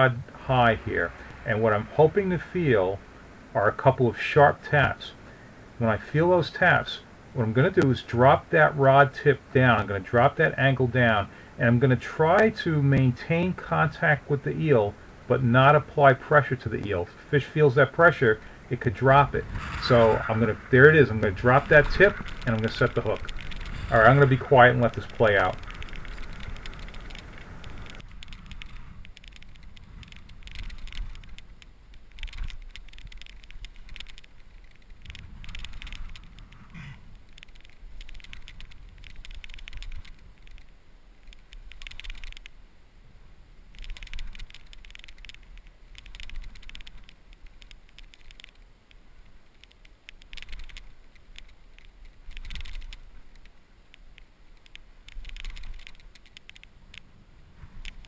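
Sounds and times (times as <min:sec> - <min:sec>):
fishing reel clicking and whirring: 0:41.7 - 0:42.4, 0:52.3 - 0:53.0.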